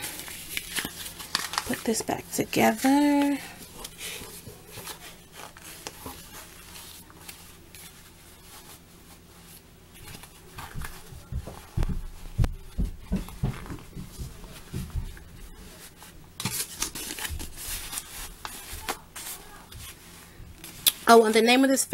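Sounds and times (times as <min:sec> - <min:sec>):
fabric rustling: 0:02.8 - 0:16.2
dull low thumps: 0:10.7 - 0:15.5.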